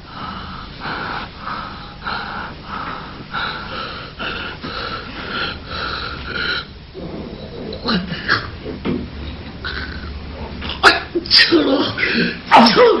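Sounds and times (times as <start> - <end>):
man breathing hard: 0.0 - 6.8.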